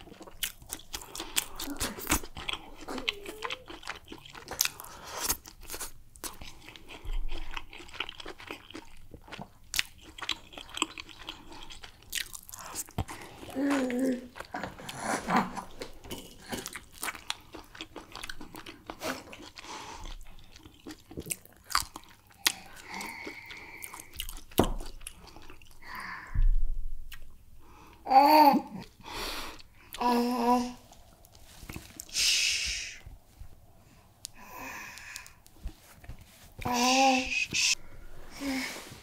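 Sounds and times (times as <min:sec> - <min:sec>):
wet chewing and lip smacks: 0:00.0 - 0:13.2, 0:15.8 - 0:25.8
short voice sounds: 0:36.6 - 0:37.8.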